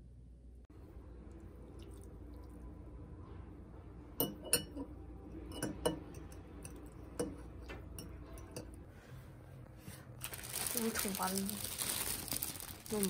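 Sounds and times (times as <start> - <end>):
fork clinking against ceramic bowl: 4.2 - 4.9, 5.5 - 8.8.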